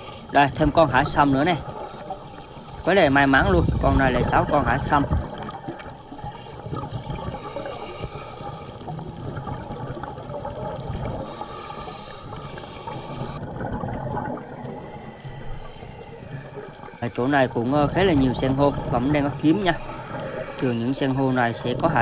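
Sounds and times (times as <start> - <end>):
exhaled bubbles gurgling: 0.0 - 22.0
diver breathing through regulator: 6.4 - 9.0, 11.2 - 13.6, 14.4 - 17.2, 19.7 - 21.4.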